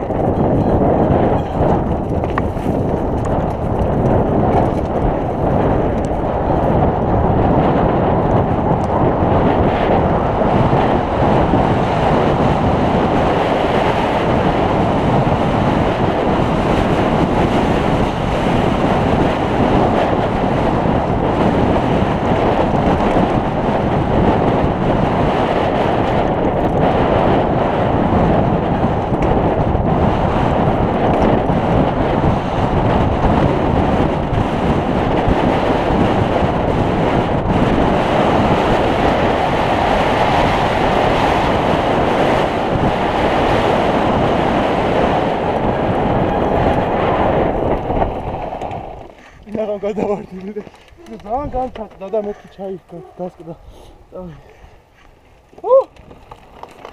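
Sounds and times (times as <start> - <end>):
wind buffeting microphone: 0.0 - 56.9
tyres rolling over gravel: 45.4 - 53.4, 54.2 - 56.9.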